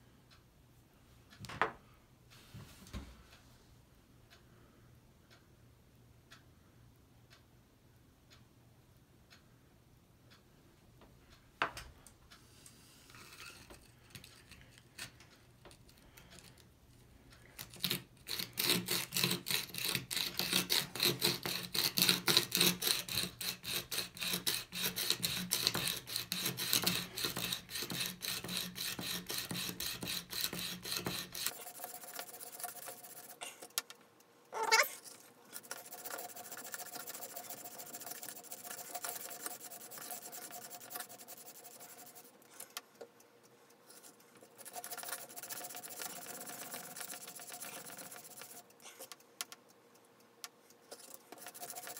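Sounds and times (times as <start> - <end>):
sharpening stone scraping chisel: 17.6 - 33.7, 34.6 - 42.2, 44.6 - 49.2, 51.0 - 51.9
short squeak: 34.6 - 35.0.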